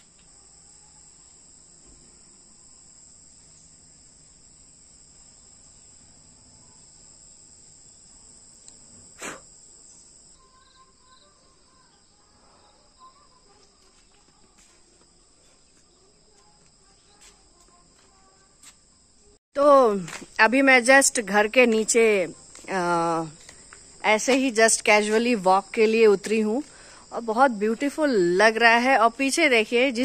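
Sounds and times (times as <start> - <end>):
faint chirps: 0.0 - 4.4, 5.2 - 19.4
insects chirring: 0.0 - 30.0.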